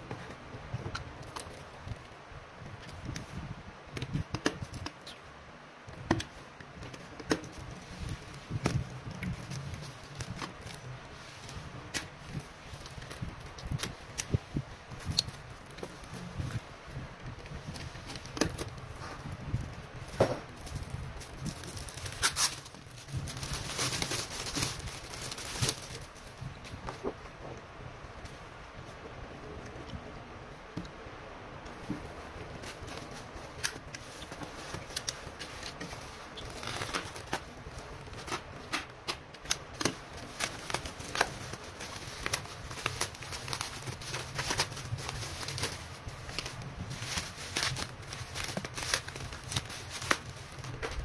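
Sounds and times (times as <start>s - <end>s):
plastic wrap crinkling: 6.8s - 27.2s, 31.7s - 51.0s.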